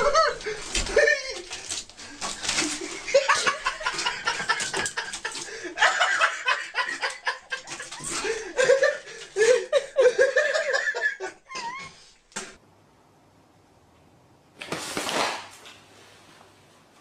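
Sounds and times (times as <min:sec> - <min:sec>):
person laughing: 0:00.0 - 0:01.7, 0:02.6 - 0:12.1
rustling: 0:00.0 - 0:09.6.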